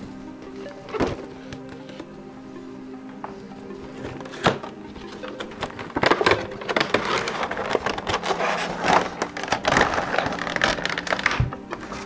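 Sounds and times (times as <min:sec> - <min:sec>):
packaging rustling and scraping: 0:03.9 - 0:12.0.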